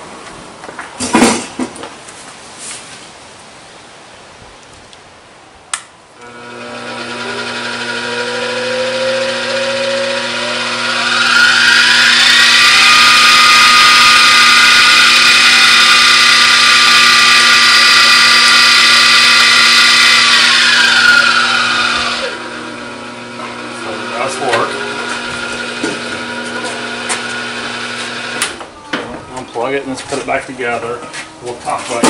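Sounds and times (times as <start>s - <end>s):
milling machine spindle whine: 6.2s - 28.6s.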